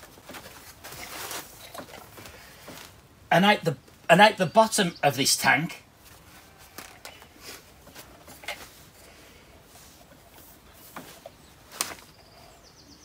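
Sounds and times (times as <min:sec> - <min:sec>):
hose fitting rustling: 0:00.0 - 0:03.0.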